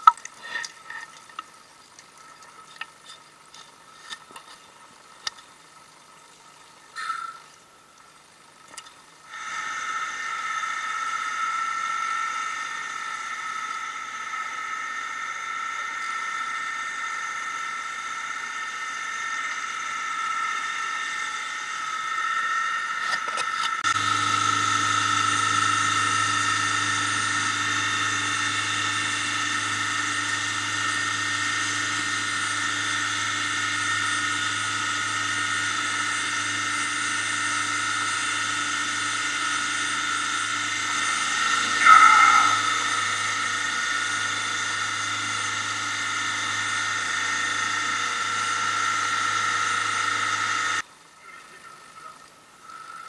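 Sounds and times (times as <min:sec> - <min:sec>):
low hum: 0:00.0 - 0:53.0
boat engine whine: 0:09.3 - 0:50.8.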